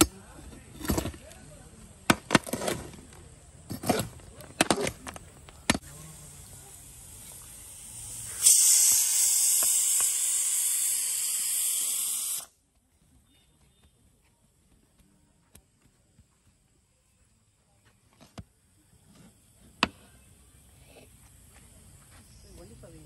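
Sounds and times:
steam hissing from pot: 0:05.8 - 0:12.5.

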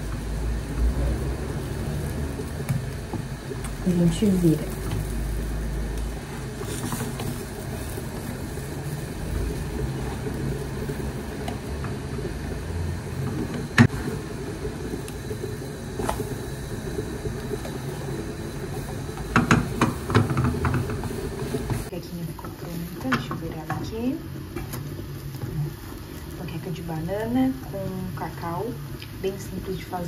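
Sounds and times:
low rumble of gas hob: 0:00.0 - 0:30.0
spatula knocking on pan: 0:19.2 - 0:21.1
spatula tapping and scraping pan: 0:19.2 - 0:21.8.

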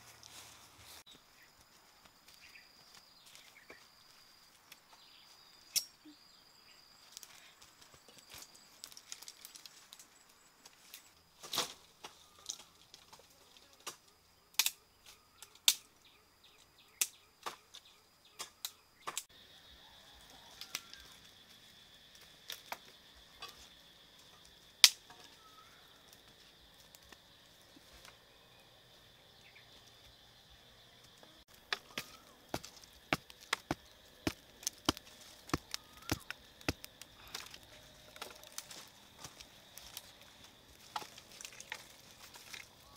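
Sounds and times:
insects droning: 0:00.0 - 0:42.9
sticks snapping and knocking: 0:13.8 - 0:14.8, 0:15.5 - 0:15.9, 0:24.8 - 0:25.4, 0:31.5 - 0:42.7.

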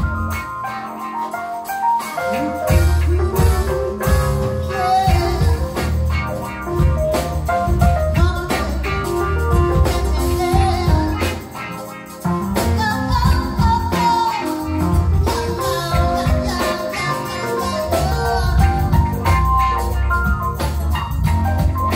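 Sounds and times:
live soul band playing: 0:00.0 - 0:21.9
woman singing: 0:02.4 - 0:06.0, 0:07.8 - 0:11.6, 0:12.6 - 0:19.5.

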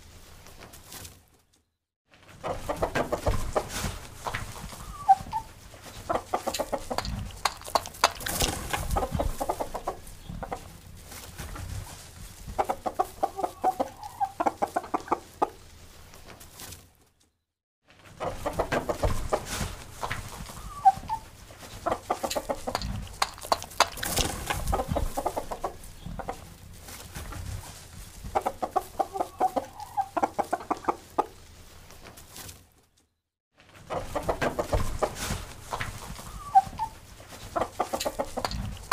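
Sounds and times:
roosters clucking and squawking: 0:02.3 - 0:16.5, 0:18.0 - 0:32.5, 0:33.8 - 0:38.9
sharp knocks: 0:22.8 - 0:24.6.

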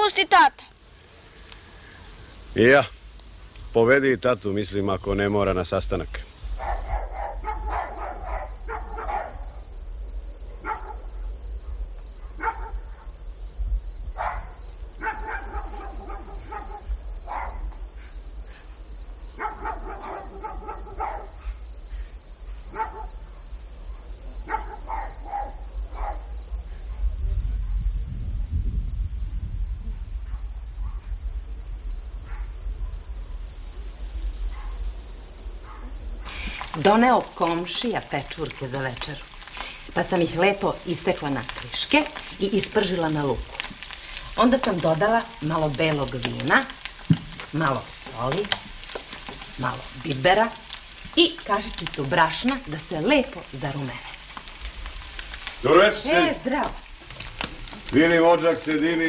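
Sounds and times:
crickets trilling: 0:00.0 - 0:59.0
distant dog barking: 0:06.6 - 0:09.6, 0:10.5 - 0:13.2, 0:14.2 - 0:17.8, 0:19.3 - 0:21.6, 0:22.7 - 0:27.0, 0:30.3 - 0:31.2, 0:32.2 - 0:33.0, 0:34.5 - 0:34.9, 0:35.6 - 0:36.4.

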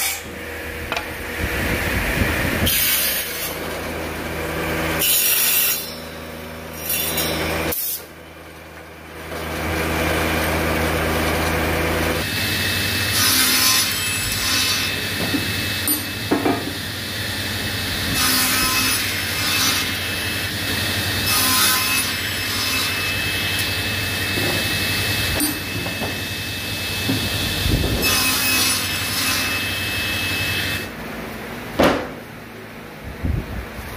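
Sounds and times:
table saw whining: 0:00.0 - 0:08.2, 0:09.3 - 0:31.0
saw rasping through wood: 0:09.9 - 0:30.9.

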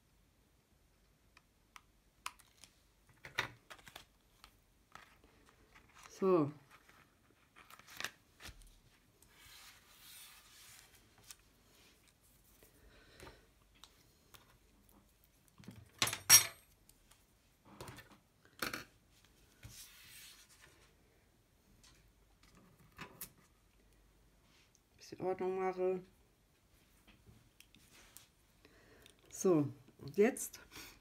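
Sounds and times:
paper rustling: 0:03.6 - 0:12.6.

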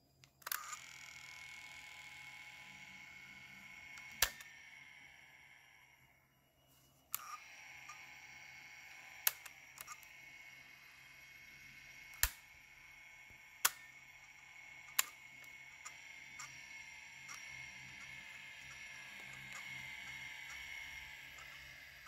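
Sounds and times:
plastic mechanism clicks: 0:00.3 - 0:00.8, 0:04.0 - 0:04.5, 0:09.3 - 0:10.1
small motor whining: 0:00.4 - 0:22.0.

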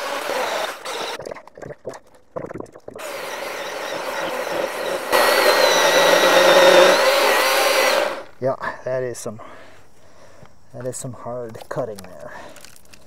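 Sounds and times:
chainsaw cutting log: 0:00.0 - 0:01.2, 0:03.0 - 0:08.3.

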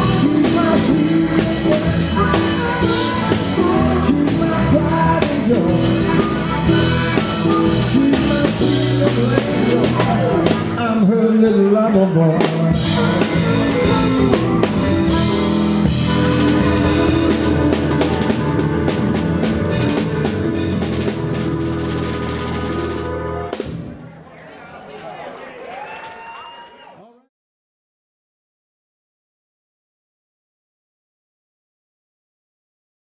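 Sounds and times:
electric guitar: 0:00.0 - 0:24.0
drum kit: 0:00.0 - 0:24.1
bass: 0:00.0 - 0:24.3
keyboards: 0:00.0 - 0:25.4
harmonica: 0:12.8 - 0:23.6.

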